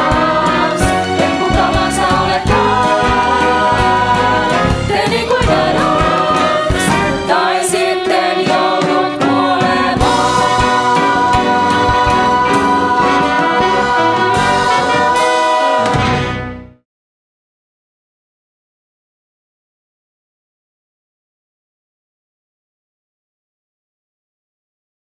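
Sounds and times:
cast singing together: 0.0 - 16.4
band accompaniment: 0.0 - 16.8.

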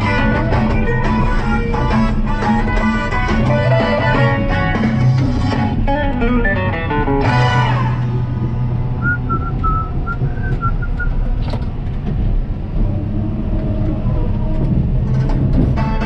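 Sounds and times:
low rumble: 0.0 - 16.0
person whistling a tune: 9.0 - 11.2.

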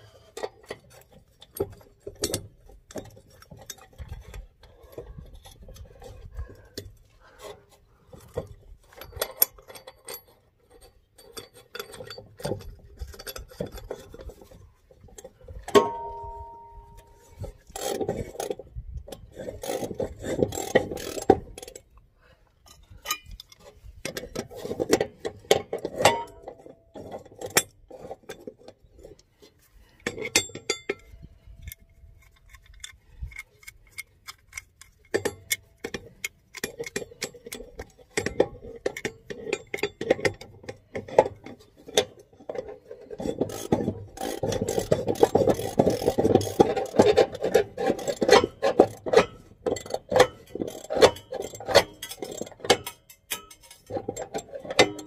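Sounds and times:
ringing metal clank: 15.7 - 17.3
metal scraping on metal: 22.7 - 55.0
metallic clinks and clicks: 30.0 - 55.0.

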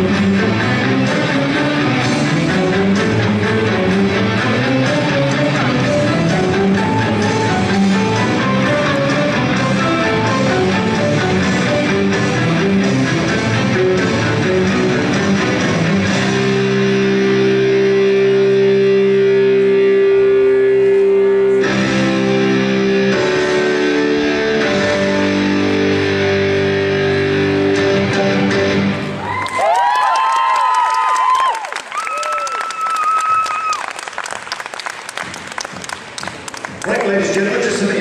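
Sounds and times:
guitar-led music: 0.0 - 29.3.

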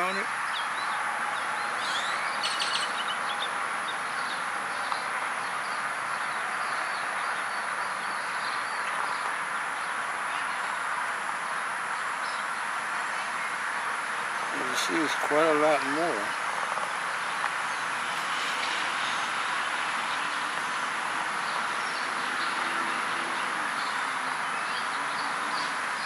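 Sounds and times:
outdoor background hiss: 0.0 - 26.0
faint bird chirps: 0.5 - 9.2.

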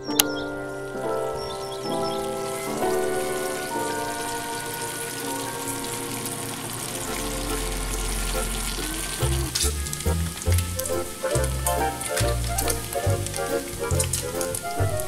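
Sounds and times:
bacon sizzling in a skillet: 2.4 - 15.0
background music with bass line: 7.0 - 15.0.

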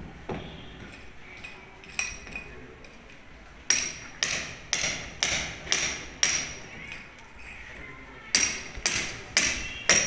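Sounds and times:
hammer striking steel chisel: 3.7 - 6.7, 8.3 - 10.0.

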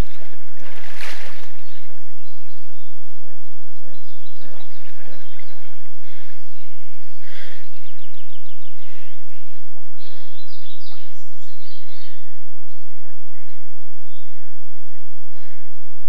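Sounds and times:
water splashing and sloshing: 0.0 - 2.7, 4.4 - 6.0
steady low hum: 0.0 - 16.0
small birds chirping: 3.8 - 14.5.

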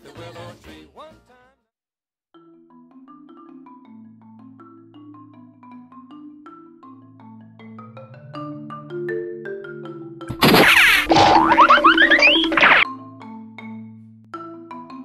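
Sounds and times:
mallet percussion tune: 2.4 - 10.4, 12.8 - 15.0.

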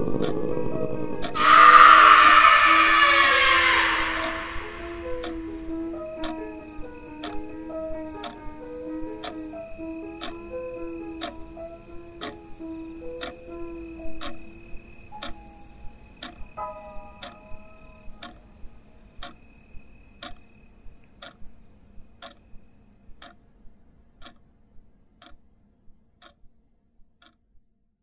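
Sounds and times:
clock ticking: 0.0 - 18.6, 19.2 - 19.4, 20.2 - 20.5, 21.2 - 21.6, 22.2 - 22.5, 23.2 - 23.4, 24.2 - 24.5, 25.2 - 25.5, 26.2 - 26.4, 27.2 - 27.4.

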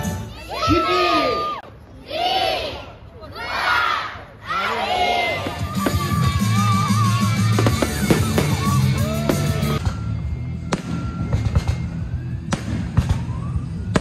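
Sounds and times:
music: 0.0 - 0.5, 5.5 - 14.0.

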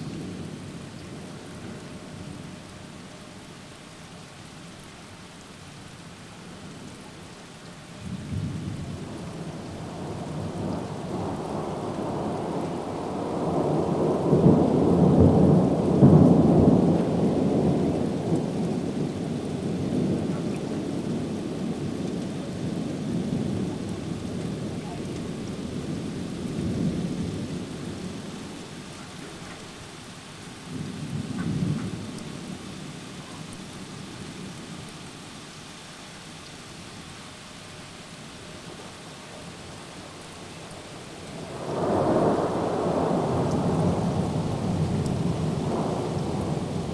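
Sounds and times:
steady rain: 0.0 - 46.9
thunder rumbling: 8.0 - 29.9, 30.6 - 34.8, 39.4 - 46.9.

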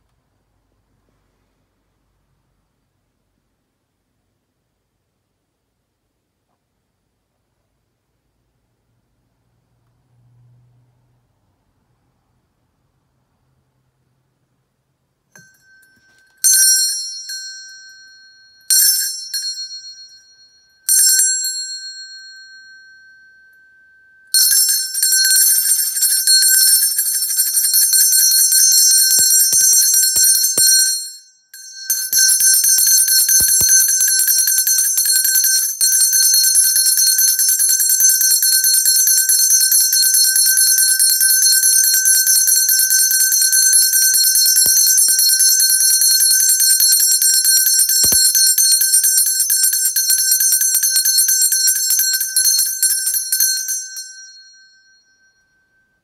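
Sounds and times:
hand bell struck: 15.3 - 36.3, 47.4 - 49.3, 50.2 - 56.0.

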